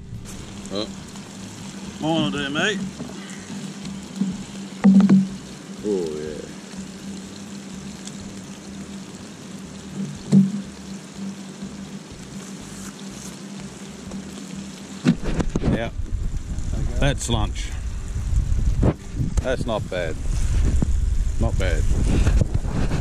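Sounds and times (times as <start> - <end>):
low hum: 0.0 - 23.0
onions sizzling in a pan: 0.0 - 23.0
brief knock: 10.3 - 10.6.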